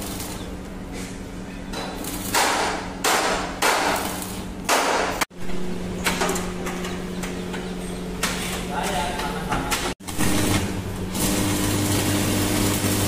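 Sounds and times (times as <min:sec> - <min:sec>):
arc welding crackling hiss: 0:00.0 - 0:00.8, 0:02.0 - 0:03.0, 0:03.6 - 0:04.6, 0:10.0 - 0:13.0
steady electrical hum: 0:00.0 - 0:13.0.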